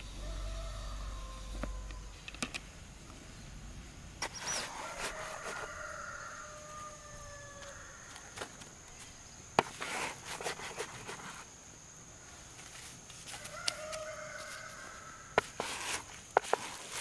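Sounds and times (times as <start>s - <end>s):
rooster crowing: 0.1s - 2.1s, 4.6s - 8.3s, 13.4s - 15.4s
high insect buzz: 4.2s - 17.0s.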